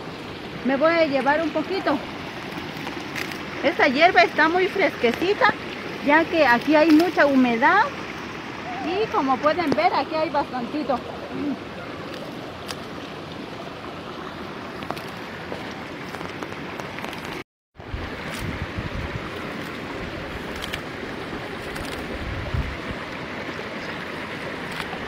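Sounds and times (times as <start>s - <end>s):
stream rushing: 0.0s - 25.0s
herb stems snapping: 2.4s - 3.5s, 6.9s - 7.1s, 20.5s - 20.8s, 21.6s - 22.1s
wind buffeting microphone: 17.8s - 25.0s.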